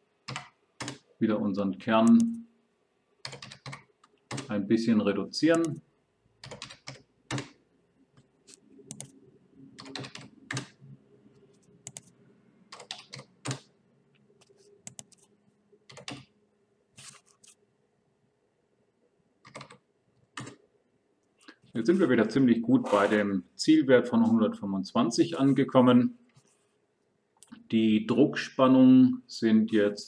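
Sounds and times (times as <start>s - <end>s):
keyboard keystrokes: 6.4s - 7.5s, 8.9s - 9.1s, 15.9s - 16.3s.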